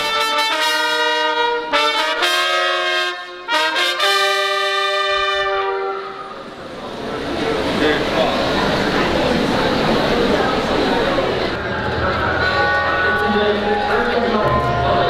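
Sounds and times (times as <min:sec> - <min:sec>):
brass ensemble held chords: 0:00.0 - 0:06.6, 0:11.6 - 0:15.0.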